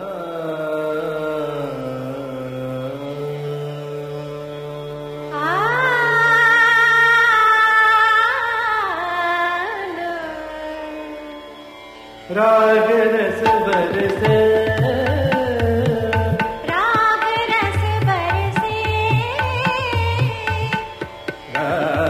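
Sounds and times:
tabla strokes: 13.4 - 22.0.

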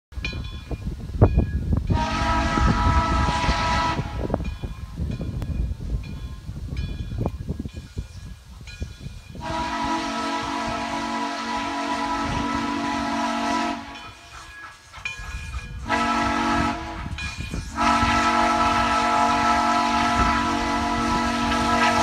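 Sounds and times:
steam locomotive whistle: 1.9 - 4.5, 9.4 - 22.0.

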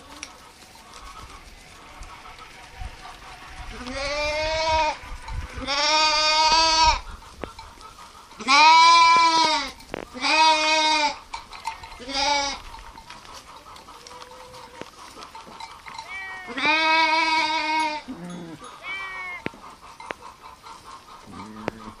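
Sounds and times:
sheep bleating: 0.8 - 7.0, 8.4 - 11.2, 11.9 - 12.7, 16.0 - 19.6.

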